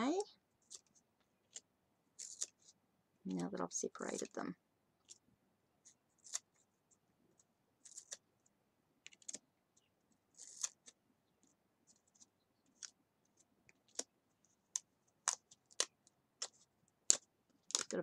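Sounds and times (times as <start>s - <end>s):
cards clicking and snapping: 2.2s - 2.6s, 7.8s - 8.2s, 9.0s - 9.4s, 10.4s - 11.0s, 14.7s - 18.0s.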